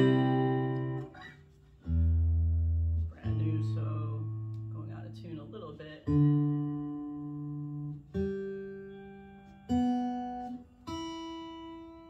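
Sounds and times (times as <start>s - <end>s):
electric guitar chords strummed: 0.0s - 5.2s.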